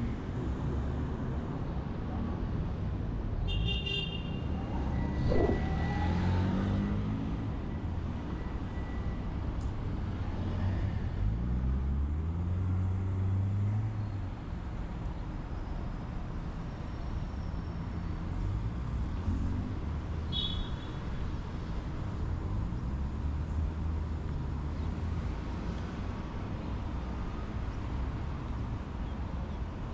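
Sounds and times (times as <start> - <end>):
traffic rumble: 0.0 - 29.9
vehicle engines accelerating: 4.4 - 8.3, 17.8 - 20.2, 21.4 - 26.5.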